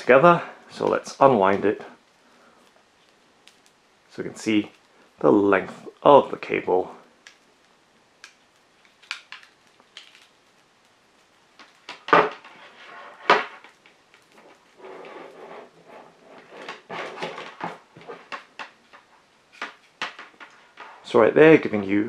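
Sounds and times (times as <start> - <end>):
cable rustling: 7.2 - 21.3.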